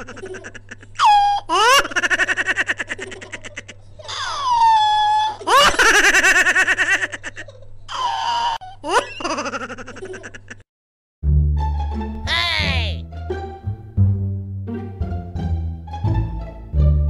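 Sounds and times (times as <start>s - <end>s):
squeaky high-pitched laughter: 0.0s - 10.6s.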